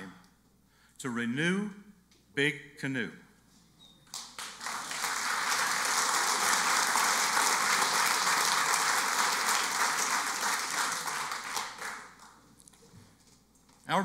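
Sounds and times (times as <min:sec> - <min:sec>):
audience applauding: 0:04.1 - 0:12.4.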